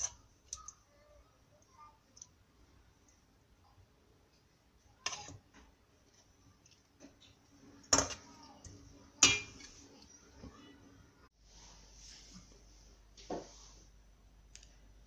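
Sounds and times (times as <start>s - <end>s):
metal spoon scraping pan: 5.0s - 5.4s
spoon clinking on pan: 9.2s - 9.7s.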